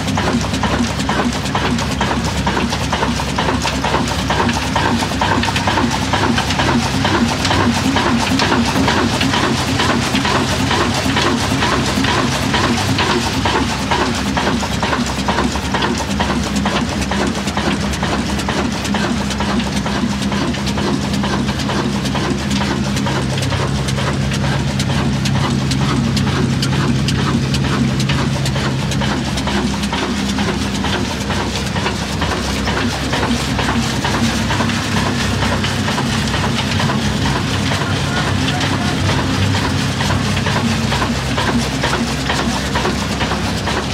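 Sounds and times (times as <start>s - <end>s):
diesel engine clattering: 0.0s - 43.9s.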